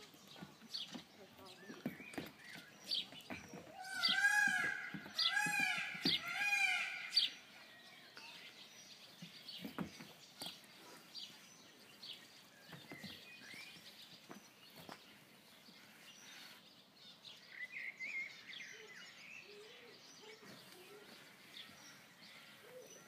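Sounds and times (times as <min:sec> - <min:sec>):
loud animal calls: 0:03.8 - 0:07.2.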